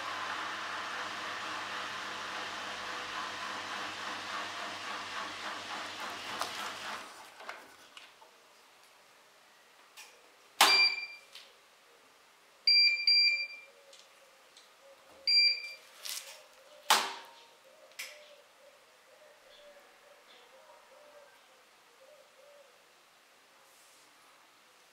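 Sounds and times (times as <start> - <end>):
washing machine drum running: 0.0 - 7.1
control panel beeps: 10.7 - 11.2, 12.7 - 13.7, 15.3 - 15.8.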